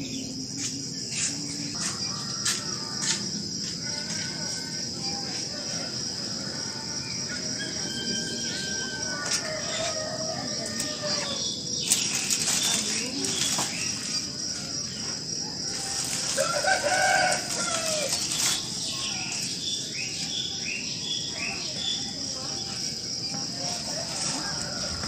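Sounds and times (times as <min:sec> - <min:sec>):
crickets trilling: 0:00.0 - 0:25.0
rooster crowing: 0:07.4 - 0:11.6, 0:15.6 - 0:18.3, 0:23.9 - 0:25.0
small birds chirping: 0:18.1 - 0:24.8.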